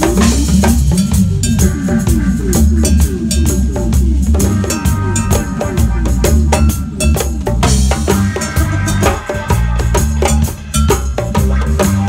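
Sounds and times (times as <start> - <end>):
live reggae band playing: 0.0 - 12.0.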